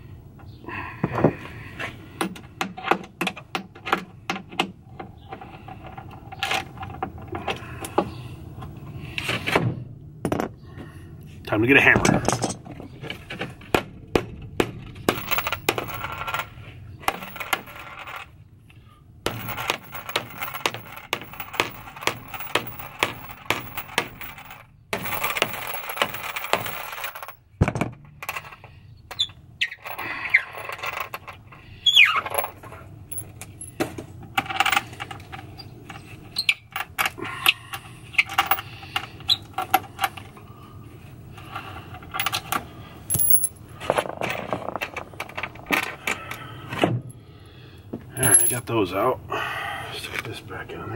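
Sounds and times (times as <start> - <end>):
hammer tapping on metal bolts: 13.6 - 16.0, 19.3 - 28.5.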